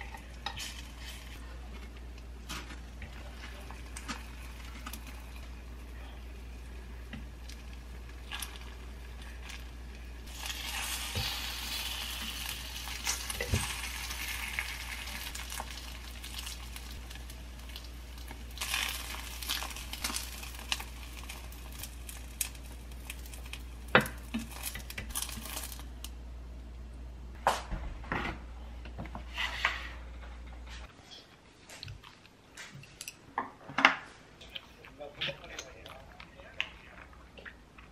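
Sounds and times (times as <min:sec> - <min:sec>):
low steady hum: 0:00.0 - 0:33.2
food sizzling in a frying pan: 0:03.1 - 0:26.0.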